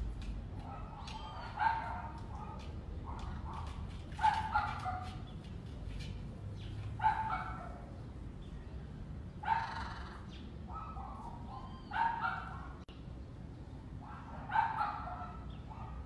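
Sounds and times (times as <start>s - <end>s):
dog barking: 0.6s - 5.2s, 7.0s - 7.9s, 9.4s - 9.9s, 10.7s - 12.8s, 14.0s - 16.0s.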